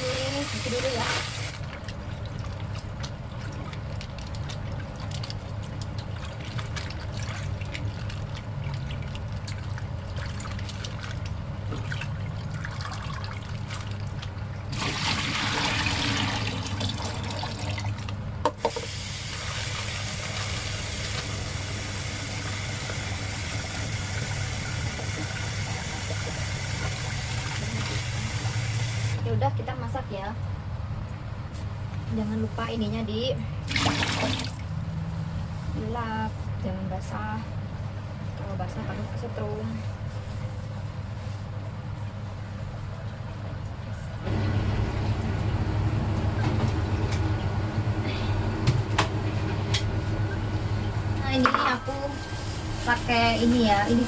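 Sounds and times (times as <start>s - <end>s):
rice rinsing in pot: 0.0s - 18.1s
tap water running: 0.0s - 29.2s, 33.7s - 34.7s
steady low hum: 0.0s - 54.0s.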